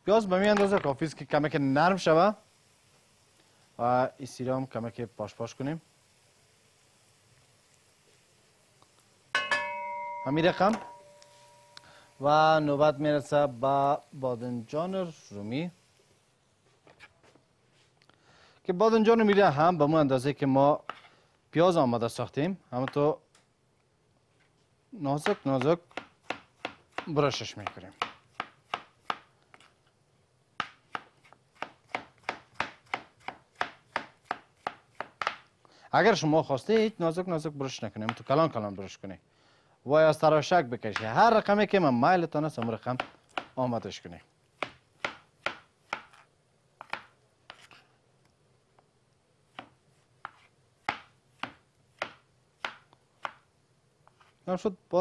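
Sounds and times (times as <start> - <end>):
knife slicing tomatoes: 44.6 - 47.8, 49.5 - 53.4.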